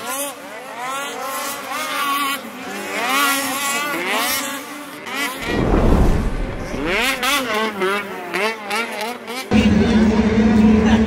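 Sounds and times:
loud deep rush: 5.4 - 7.4.

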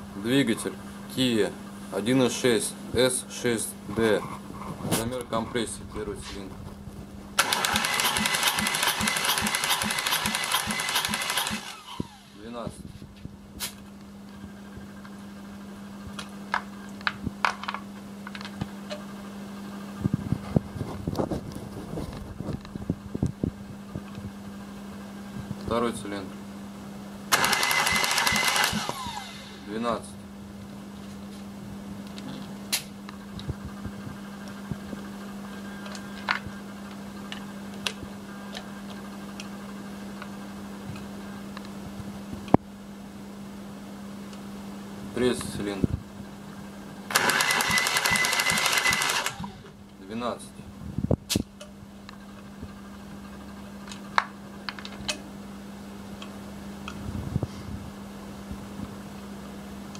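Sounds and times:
steady hum: 0.0 - 59.9
rattle of small clicks: 7.4 - 12.0.

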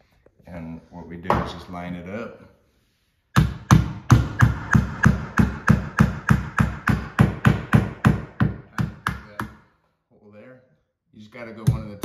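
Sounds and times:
hammer tapping on wood: 3.4 - 9.6.

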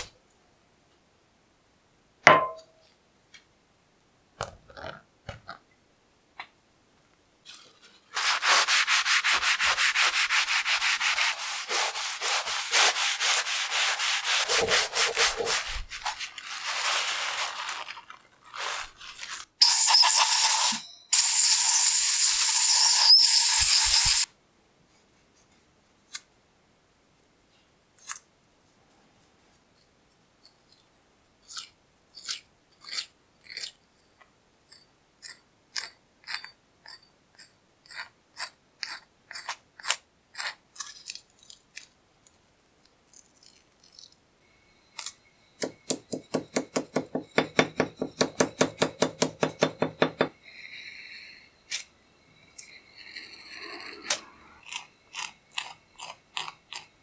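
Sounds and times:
paper towel rubbing on metal: 7.8 - 20.1
blade scraping metal: 19.6 - 24.3
loud steady hiss: 19.6 - 24.3.

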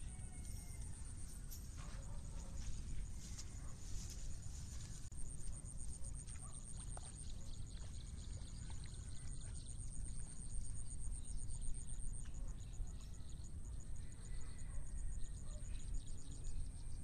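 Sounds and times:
continuous high insect buzz: 0.0 - 7.1.

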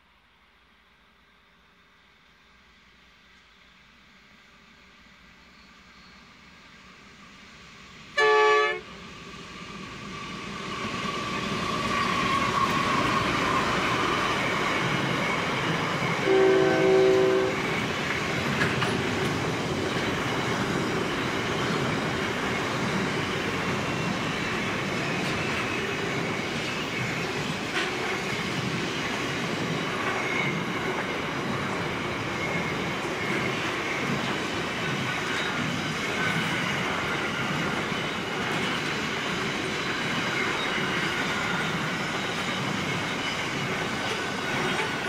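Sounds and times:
diesel freight train approaching: 0.7 - 45.0
train horn blast: 8.2 - 8.9, 16.2 - 17.7.

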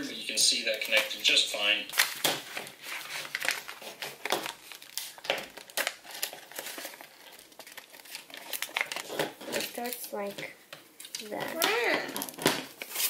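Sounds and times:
paper rustling and crinkling: 0.7 - 10.3, 12.2 - 13.0.

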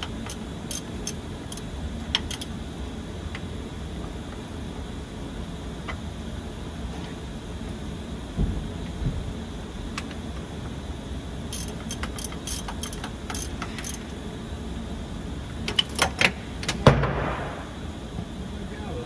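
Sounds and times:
steady low hum: 0.0 - 19.0
metallic clicks and clinks: 11.5 - 14.0.

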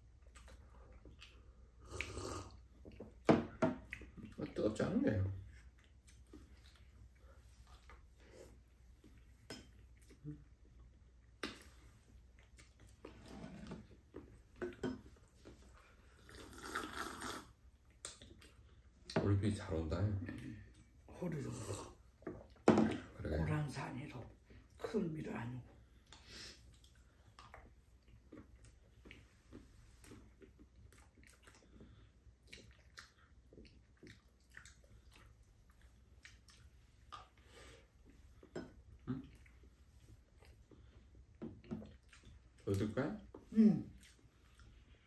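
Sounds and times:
people chewing with mouth smacks: 0.0 - 19.2, 20.2 - 23.3, 25.8 - 45.0
sipping and slurping a drink: 1.8 - 2.6, 16.0 - 18.2.

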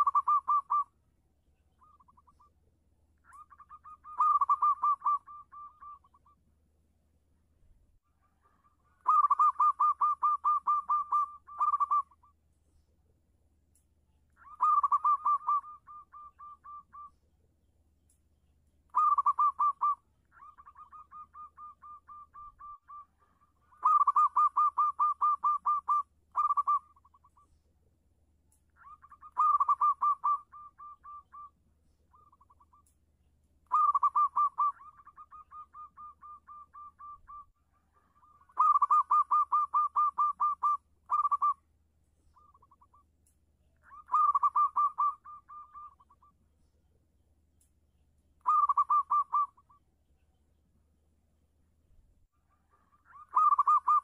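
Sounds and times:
dove cooing: 0.0 - 0.9, 3.3 - 6.4, 8.2 - 12.3, 14.4 - 17.1, 18.9 - 27.4, 28.8 - 31.5, 33.7 - 41.6, 43.8 - 46.2, 48.4 - 49.7, 52.5 - 54.0.

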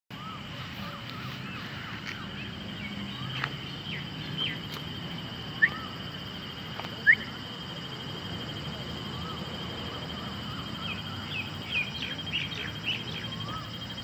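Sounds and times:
loud rising chirps: 0.1 - 6.2
birds chirping: 0.1 - 14.0
high-pitched insect drone: 0.1 - 14.0.

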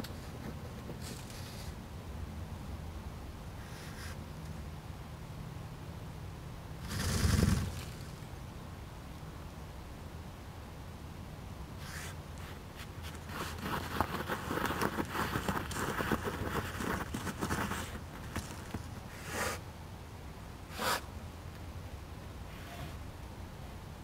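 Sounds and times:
otter sniffing and snuffling: 3.6 - 4.2, 6.8 - 8.2, 11.8 - 19.6, 20.7 - 21.1.

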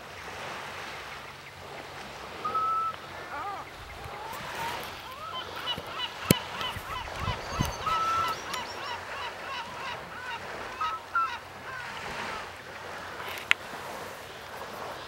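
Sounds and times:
chorus of bird calls: 1.0 - 12.6.

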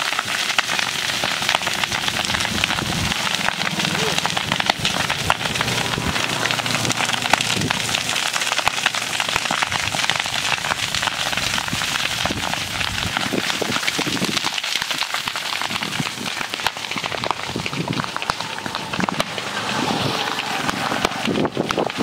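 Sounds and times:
brush fire crackling and popping: 0.0 - 22.0.

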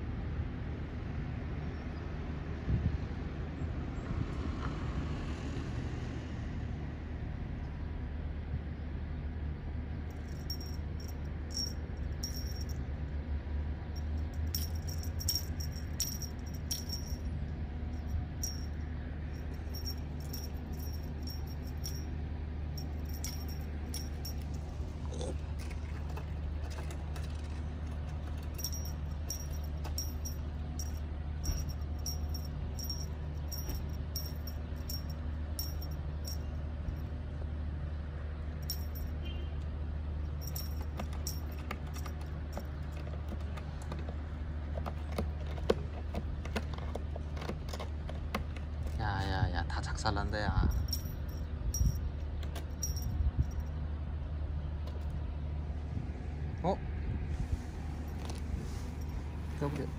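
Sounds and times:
air conditioner units humming: 9.2 - 59.9.

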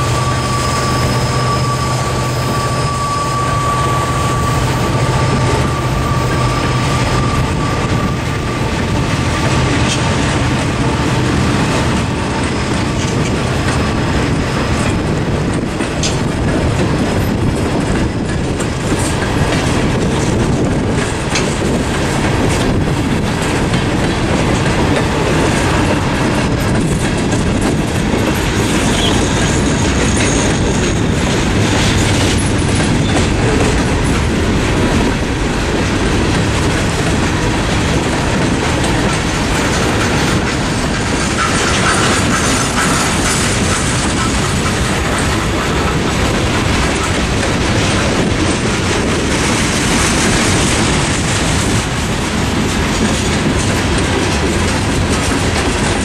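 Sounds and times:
train wheels rumbling on rails: 0.0 - 56.0
wheels clacking over rail joints: 0.0 - 56.0.

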